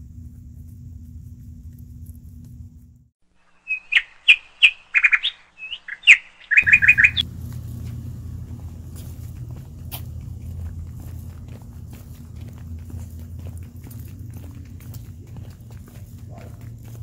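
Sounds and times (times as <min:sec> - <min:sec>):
low outdoor rumble: 0:00.0 - 0:03.6, 0:06.6 - 0:17.0
bird chirps and trills: 0:03.5 - 0:07.2.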